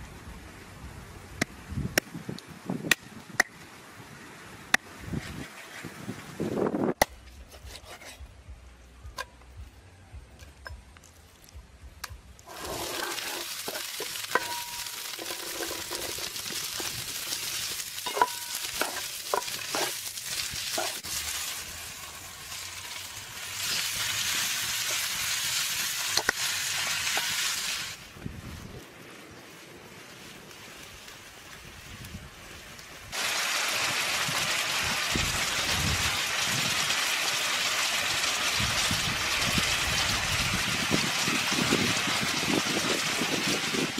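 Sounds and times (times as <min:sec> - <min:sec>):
spatula scraping against pan: 0:07.5 - 0:08.2
chillies sizzling in hot oil: 0:12.4 - 0:28.8, 0:29.9 - 0:43.9.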